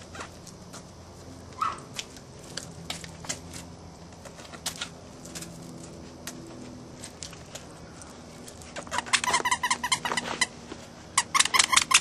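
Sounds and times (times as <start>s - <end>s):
faint steady hum: 0.0s - 12.0s
puppies clicking and tapping: 11.2s - 12.0s.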